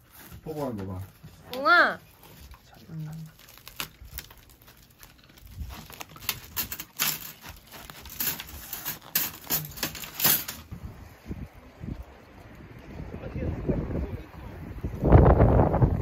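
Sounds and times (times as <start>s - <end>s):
paper crinkling: 0.0s - 10.7s.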